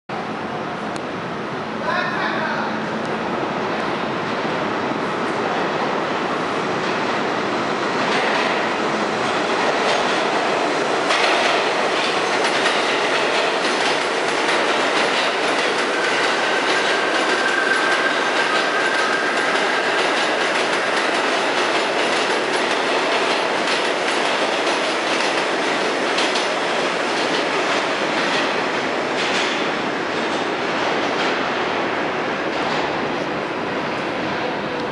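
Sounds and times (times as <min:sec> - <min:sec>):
subway train rumble: 0:00.1 - 0:34.9
wheels clacking over rail joints: 0:08.0 - 0:31.4.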